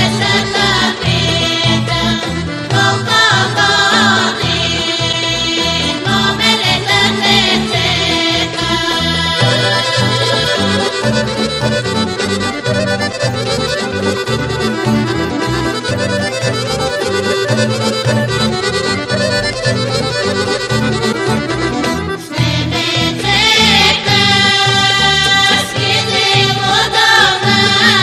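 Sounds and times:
folk dance music: 0.0s - 28.0s.

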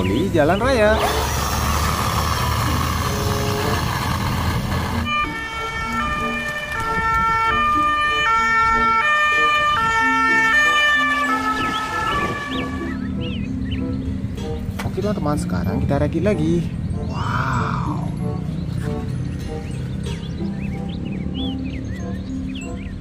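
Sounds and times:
two-tone siren: 5.0s - 13.0s.

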